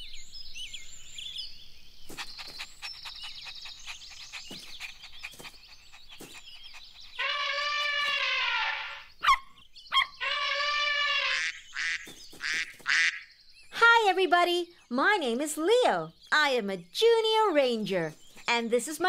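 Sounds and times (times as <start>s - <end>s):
cartoon birdsong chirps: 2.1s - 19.0s
cartoon puppy pitched cry: 6.9s - 11.6s.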